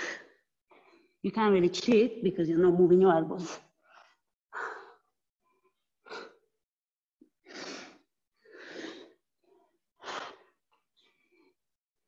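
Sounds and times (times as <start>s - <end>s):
woman breathing hard: 0.0s - 1.2s, 3.7s - 6.6s, 7.4s - 11.6s.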